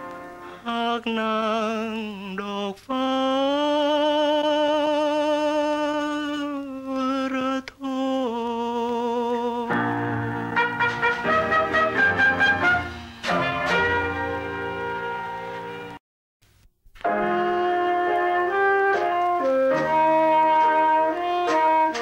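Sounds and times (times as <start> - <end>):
person singing with vibrato: 0.4 - 10.8
band accompaniment: 9.7 - 16.0, 17.0 - 22.0.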